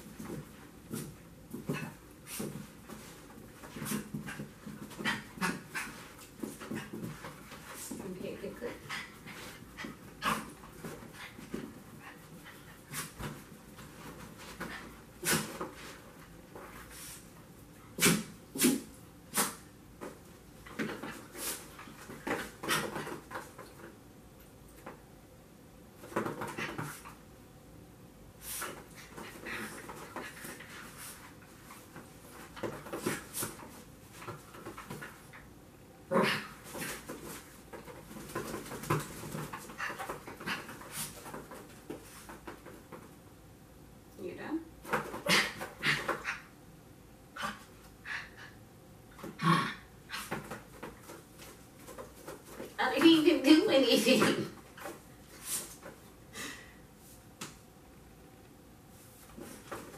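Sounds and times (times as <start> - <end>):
puppy scampering thumps and rustles: 0.0 - 17.2, 19.4 - 23.9, 28.5 - 35.5, 36.5 - 43.2, 50.1 - 53.4, 59.2 - 59.9
person moving on yoga mat: 0.0 - 17.5.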